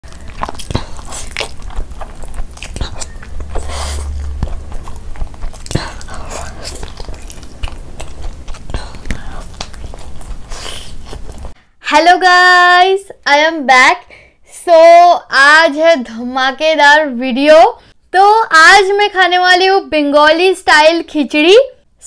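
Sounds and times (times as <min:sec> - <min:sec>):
biting into chicken: 0:00.1 - 0:11.5
wet chewing and lip smacks: 0:00.1 - 0:11.6.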